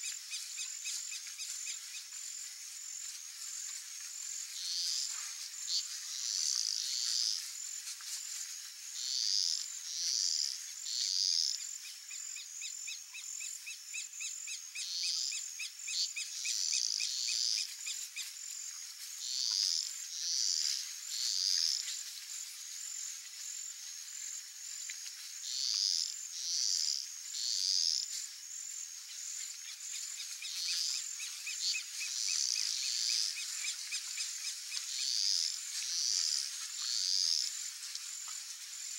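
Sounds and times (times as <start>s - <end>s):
high insect trill: 0.0s - 38.9s.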